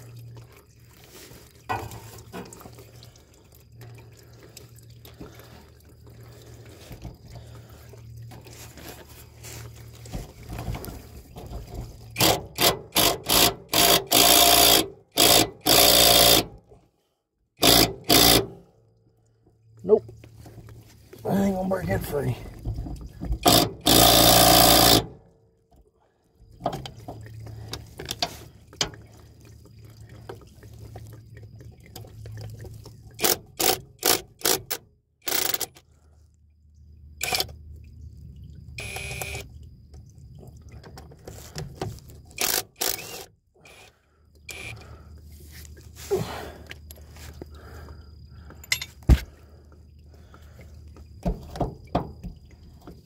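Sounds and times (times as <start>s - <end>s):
cordless power tool running: 12.2s - 16.5s, 23.5s - 25.1s, 42.4s - 43.8s
clicks and knocks of tool and bolts: 33.2s - 35.8s, 48.5s - 49.3s.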